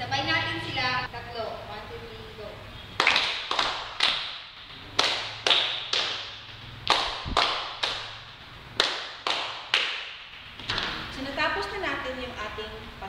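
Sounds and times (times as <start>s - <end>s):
reverberant percussive hits: 3.0s - 11.2s.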